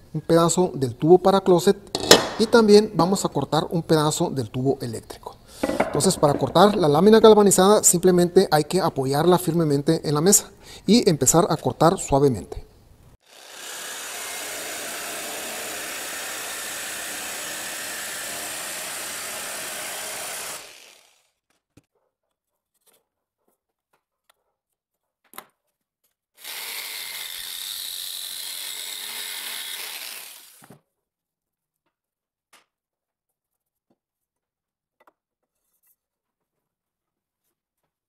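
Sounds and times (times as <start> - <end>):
jigsaw cutting metal: 13.2 - 21.4, 26.4 - 30.7.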